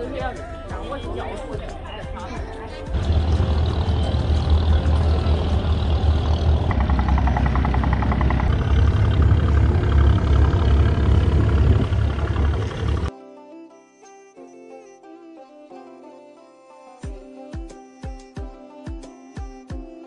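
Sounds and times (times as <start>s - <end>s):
boat diesel engine rumbling: 2.5s - 13.1s
water noise: 2.9s - 13.1s.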